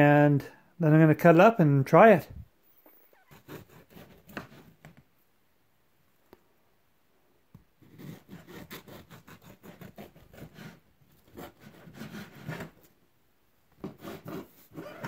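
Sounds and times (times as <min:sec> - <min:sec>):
knife sawing through bread: 0:03.3 - 0:04.8, 0:07.8 - 0:12.8, 0:13.8 - 0:15.0.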